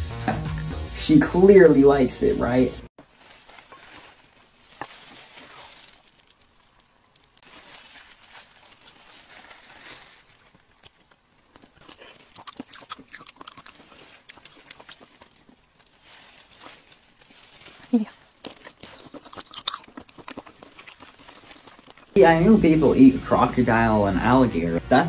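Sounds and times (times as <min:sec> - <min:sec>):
gloved hands rustling and tearing: 0:03.0 - 0:22.2.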